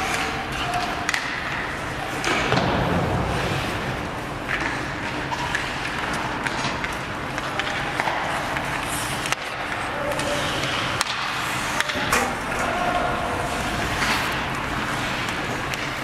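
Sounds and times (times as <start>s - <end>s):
sticks clacking on puck: 0.0s - 2.6s, 4.4s - 16.0s
skate blades scraping ice: 7.6s - 16.0s
players calling out: 11.5s - 14.4s.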